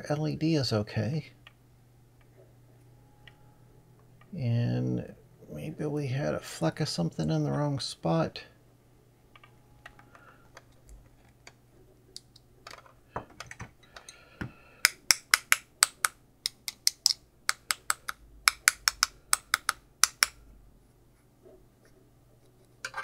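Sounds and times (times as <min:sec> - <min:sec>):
tapping on circuit board: 0:14.9 - 0:20.4.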